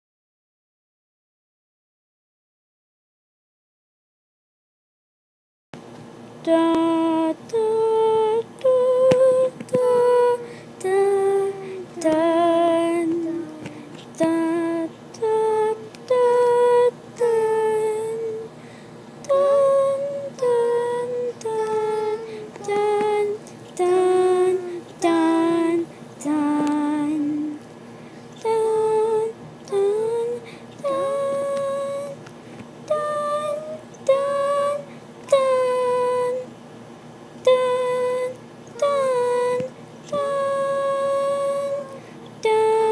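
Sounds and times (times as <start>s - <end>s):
woman singing wordless tune: 6.4s - 18.6s, 19.2s - 27.6s, 28.3s - 36.6s, 37.4s - 42.9s.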